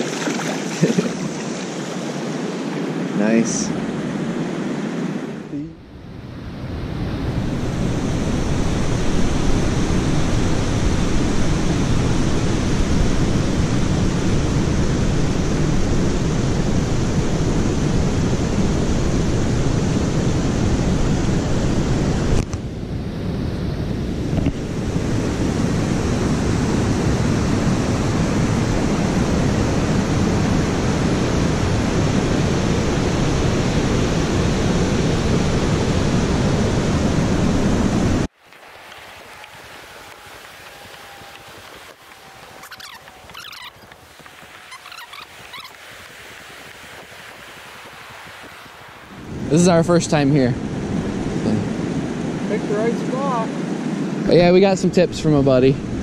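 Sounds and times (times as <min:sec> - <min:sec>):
river water rushing: 0:00.0 - 0:05.5, 0:24.6 - 0:54.2
wind on microphone: 0:00.0 - 0:38.3, 0:38.9 - 0:56.0.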